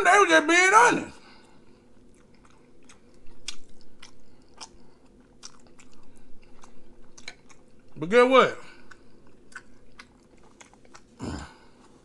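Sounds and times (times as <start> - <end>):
mouth chewing food: 2.0 - 8.0, 8.6 - 12.0.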